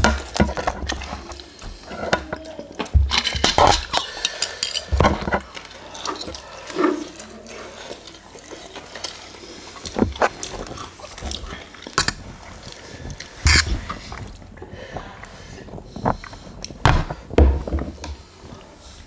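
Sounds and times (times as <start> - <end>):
chewing and slurping noodles: 5.5 - 16.8.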